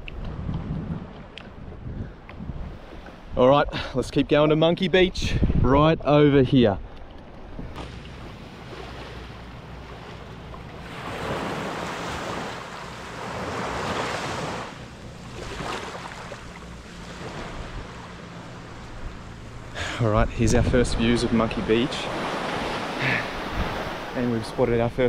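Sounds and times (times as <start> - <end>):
wind buffeting microphone: 0.0 - 25.0
sea water splashing around kayak: 6.8 - 20.0, 21.3 - 24.3.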